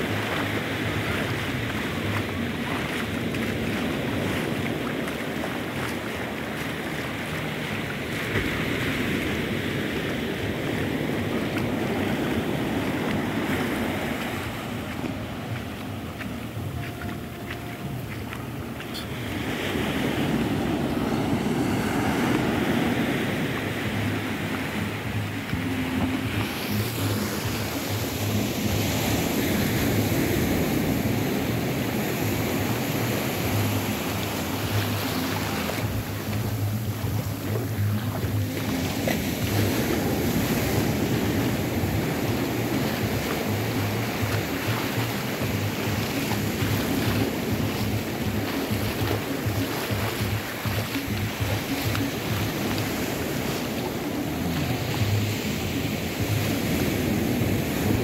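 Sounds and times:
ocean surf washing on beach: 0.0 - 58.0
wind buffeting microphone: 0.0 - 58.0.

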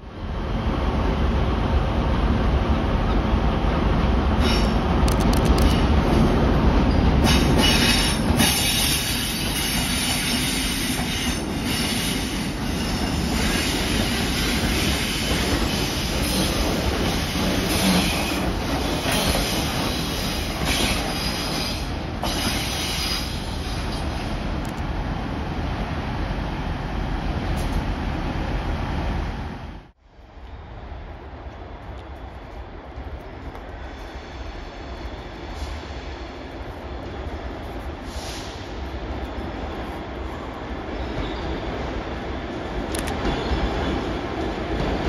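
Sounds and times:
train wheels squealing: 6.8 - 24.3, 40.9 - 41.9.

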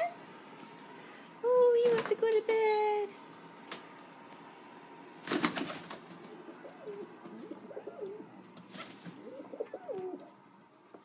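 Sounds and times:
wing flaps: 5.2 - 6.4, 8.6 - 9.4
pigeon cooing: 5.6 - 10.4.

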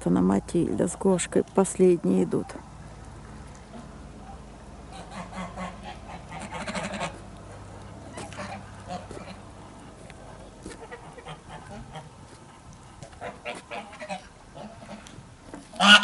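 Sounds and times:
geese honking: 3.6 - 16.0.

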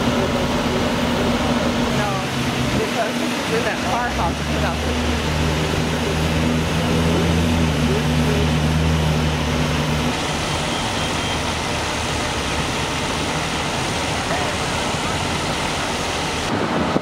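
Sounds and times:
diesel engine idling: 0.0 - 17.0
steady rushing noise: 0.0 - 17.0.

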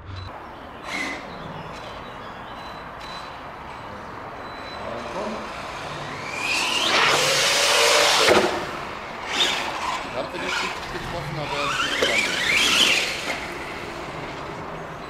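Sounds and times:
electric motor whine: 5.0 - 14.6.

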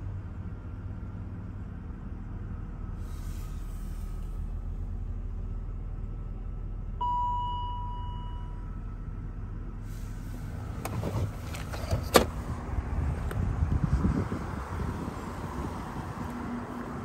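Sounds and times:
car engine idling hum: 0.0 - 17.0
chime tone: 7.0 - 8.8
wind on microphone: 12.6 - 17.0.

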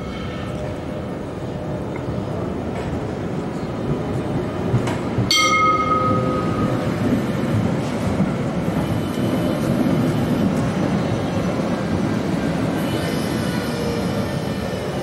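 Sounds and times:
tram rolling past: 0.0 - 15.0
tram warning bell: 5.2 - 11.6, 12.3 - 15.0.

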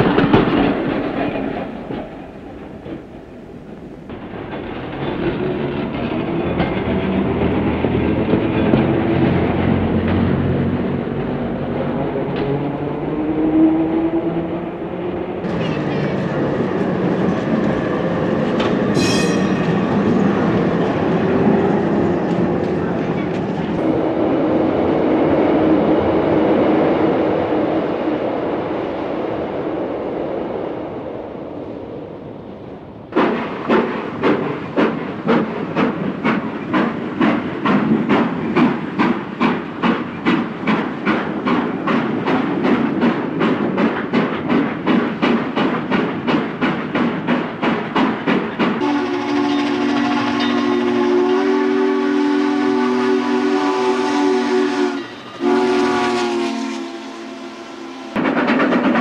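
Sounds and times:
electric streetcar rumbling: 0.0 - 59.0
train passing: 0.0 - 59.0.

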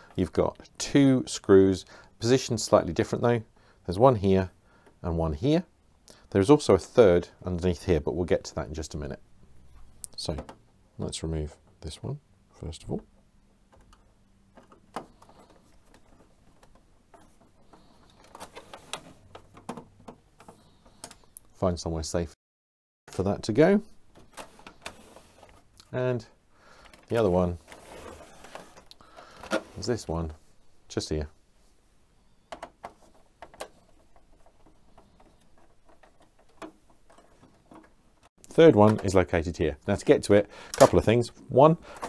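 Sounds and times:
faint handling noise: 12.8 - 21.6, 23.1 - 42.0.

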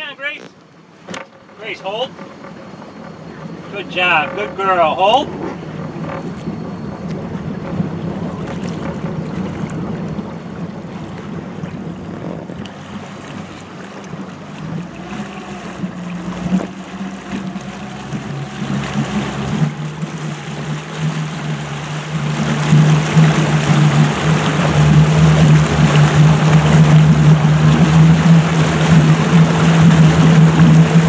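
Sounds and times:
motorboat engine hum: 0.0 - 31.0
water wash: 0.0 - 31.0
wind noise: 5.3 - 13.6.

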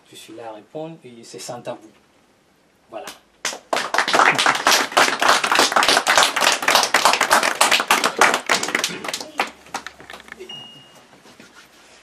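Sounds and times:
audience applauding: 3.4 - 10.4.

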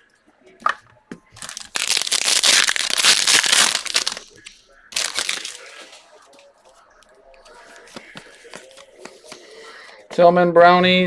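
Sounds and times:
plastic wrapper crinkling: 1.4 - 6.1.

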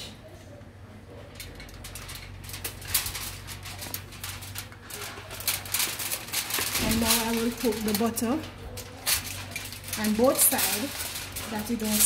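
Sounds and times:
low steady hum: 0.0 - 12.0
aluminium foil crinkling: 1.1 - 12.0.

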